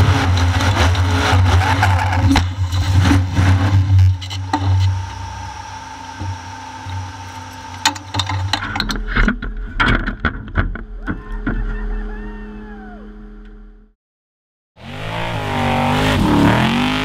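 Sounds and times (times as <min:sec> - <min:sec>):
sharp knocks and rattles: 0:00.0 - 0:05.2, 0:07.6 - 0:11.7
car engine running at low revs: 0:00.0 - 0:09.8, 0:14.8 - 0:17.0.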